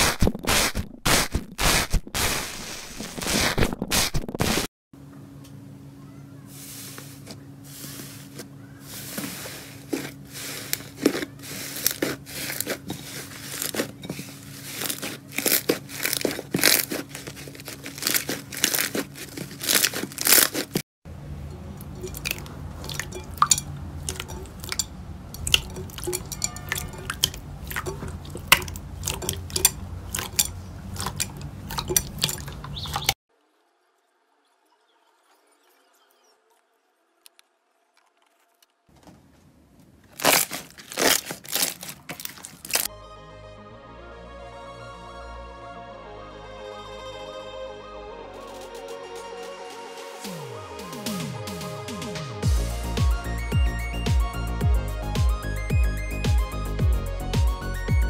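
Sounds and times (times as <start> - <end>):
slime crackling and popping: 14.6 - 20.8, 40.1 - 42.9.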